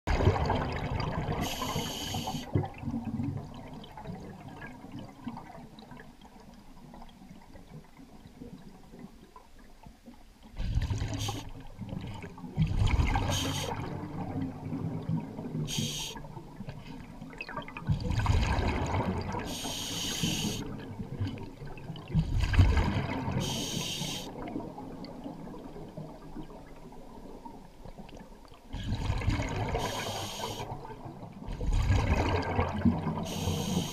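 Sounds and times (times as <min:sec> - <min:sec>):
underwater exhale bubbling: 0:00.1 - 0:06.0, 0:10.5 - 0:26.8, 0:28.7 - 0:33.9
regulator valve hissing: 0:15.7 - 0:16.2, 0:19.5 - 0:20.6, 0:23.4 - 0:24.3, 0:29.8 - 0:30.7, 0:33.3 - 0:33.9.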